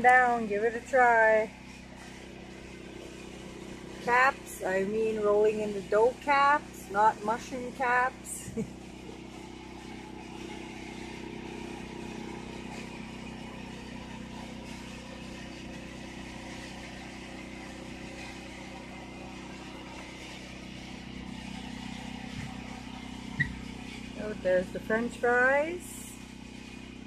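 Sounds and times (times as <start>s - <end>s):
generator engine humming: 0.0s - 27.0s.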